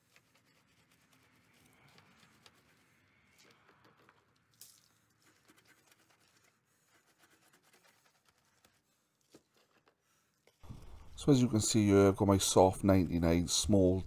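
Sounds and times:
brush scrubbing wet wheel: 5.1 - 9.3.

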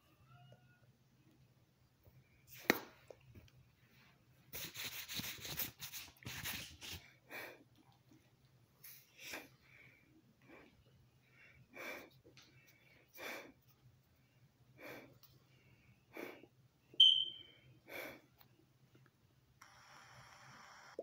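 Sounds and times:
close breathing: 8.8 - 16.6, 17.5 - 18.4.

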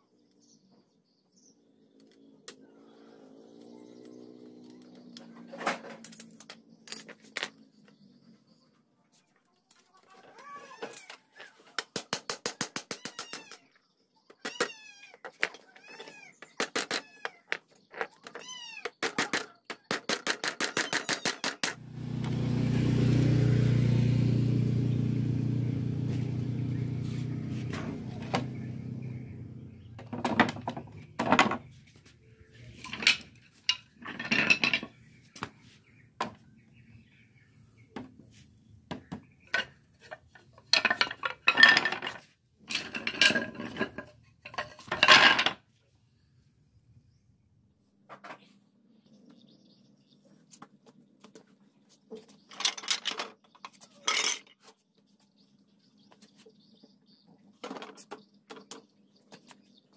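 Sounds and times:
low motor hum: 21.8 - 33.3
timber set down on concrete: 30.0 - 32.1, 32.8 - 35.5, 38.9 - 45.6.

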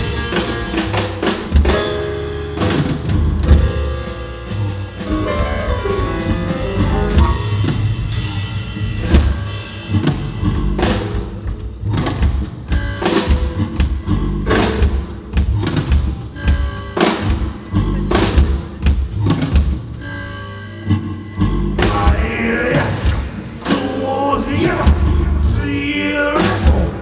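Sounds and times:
drum kit hits: 0.0 - 20.0, 21.8 - 25.6
man singing: 21.8 - 27.0.

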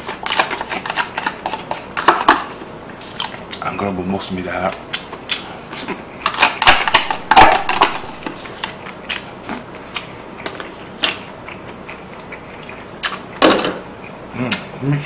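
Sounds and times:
chewing clicks: 8.6 - 13.3.

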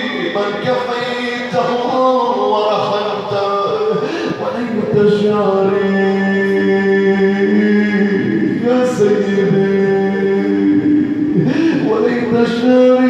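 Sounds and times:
man chanting into microphone: 0.0 - 13.0
sharp breath: 4.0 - 4.4, 11.1 - 11.9.

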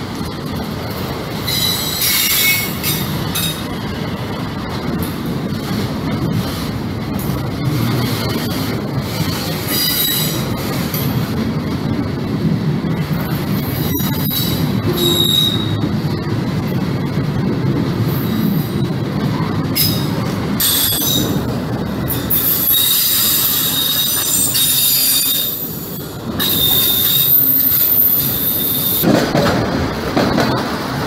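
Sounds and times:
train cars rumbling: 0.0 - 31.0
train wheels squealing: 1.4 - 3.7, 9.6 - 10.5, 13.8 - 15.8, 19.8 - 21.4, 22.2 - 29.0.

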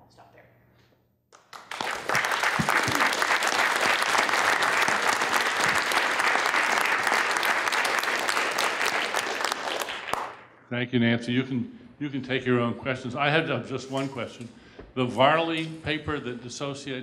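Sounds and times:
audience applauding: 1.4 - 10.5.

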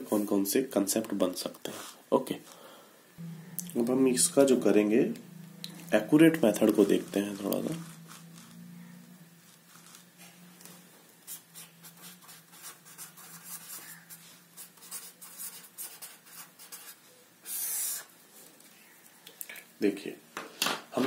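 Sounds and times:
pen scratching on paper: 11.3 - 18.0.

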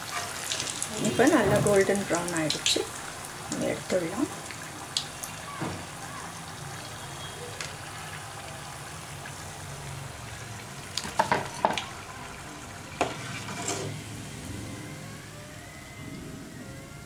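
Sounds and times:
hot oil sizzling: 0.0 - 16.4.

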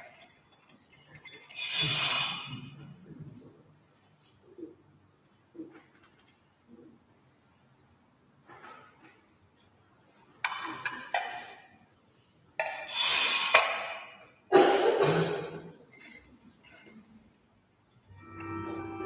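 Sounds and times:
metal censer chains clinking: 0.0 - 2.5.

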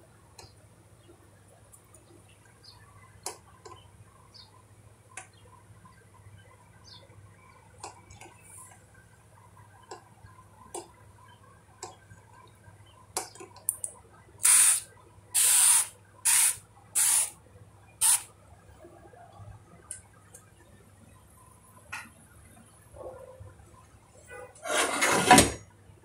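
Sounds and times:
short hissing bursts: 14.4 - 17.4, 18.0 - 18.3.

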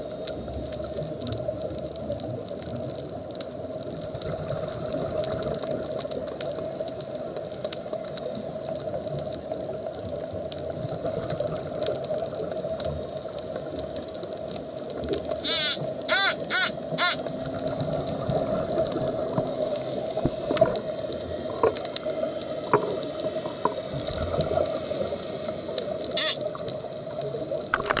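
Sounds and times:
muffled underwater hum and hiss: 0.0 - 28.0
loud bubbling hisses: 19.4 - 21.5.

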